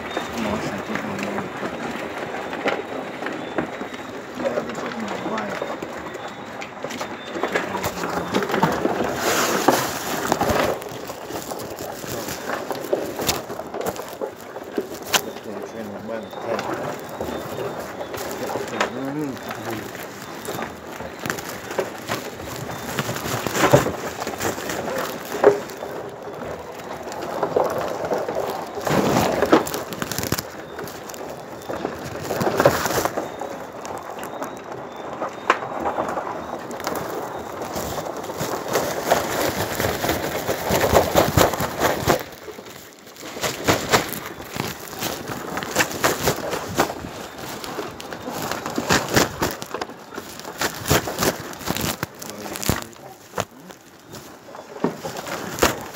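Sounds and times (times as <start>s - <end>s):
crab clicks and scrapes: 0.0s - 55.9s
sack rustling and crackling: 0.0s - 55.9s.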